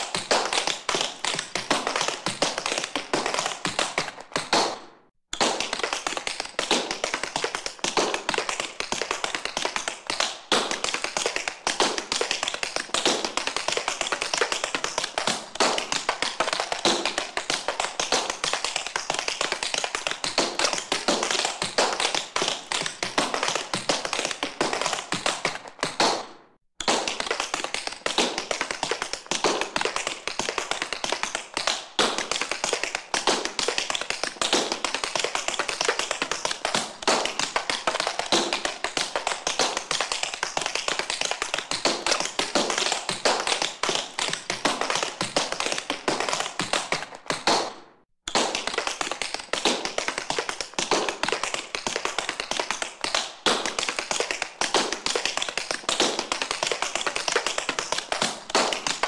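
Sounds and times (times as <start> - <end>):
tap shoes clicking on hard floor: 0.0 - 59.0.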